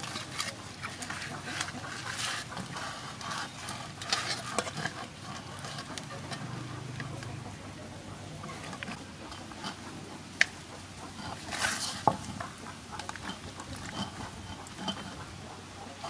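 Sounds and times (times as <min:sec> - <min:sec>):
hands rustling herbs: 0:00.0 - 0:06.4, 0:11.1 - 0:14.9.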